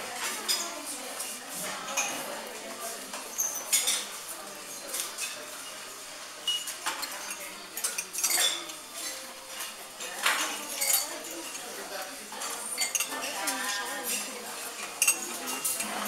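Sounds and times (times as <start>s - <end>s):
cutlery clinking on ceramic: 3.1s - 4.1s, 6.4s - 16.0s.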